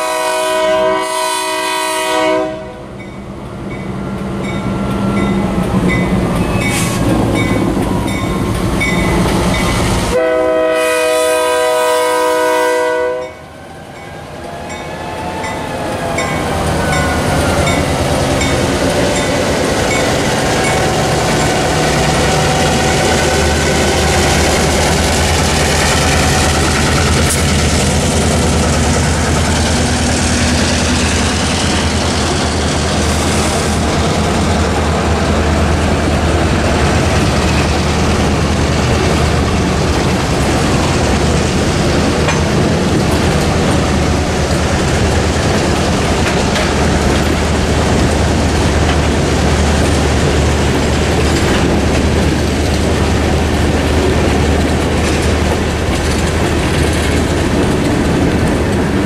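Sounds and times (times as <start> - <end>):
crossing bell ringing: 3.0 - 9.9, 13.2 - 24.9
train wheels clacking on rails: 3.0 - 10.2, 13.9 - 59.0
diesel engines humming: 13.5 - 59.0.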